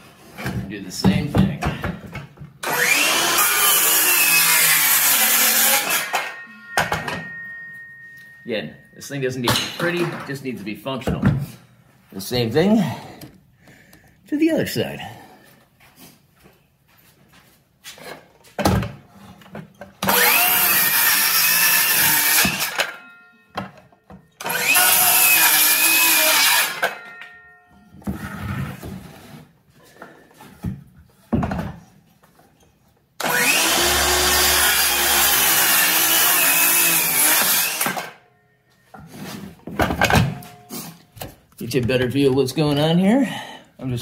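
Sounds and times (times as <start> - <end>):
circular saw cutting wood: 2.6 - 7.2, 20.0 - 23.0, 24.4 - 27.1, 33.2 - 38.2.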